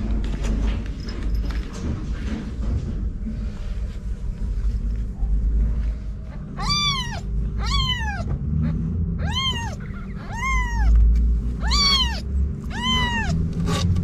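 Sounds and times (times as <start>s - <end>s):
low rumble: 0.0s - 14.0s
kittens mewing: 6.4s - 13.6s.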